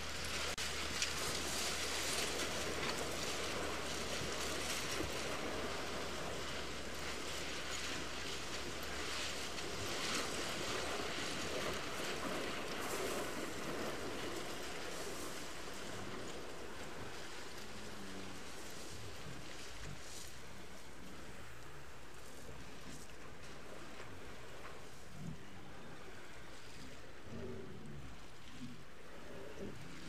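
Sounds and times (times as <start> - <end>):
surf and splashing: 0.0 - 30.0.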